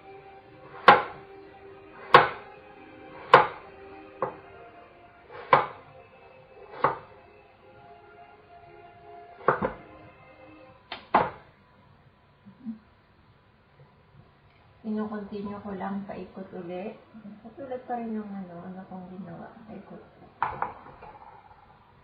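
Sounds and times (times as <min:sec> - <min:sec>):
knife chopping on wooden board: 0:05.4 - 0:05.8.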